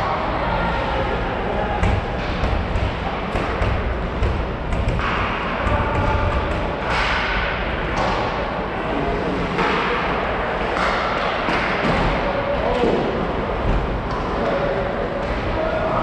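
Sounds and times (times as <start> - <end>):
hockey sticks and pucks clacking: 1.8 - 8.5, 9.2 - 13.1, 13.7 - 15.6.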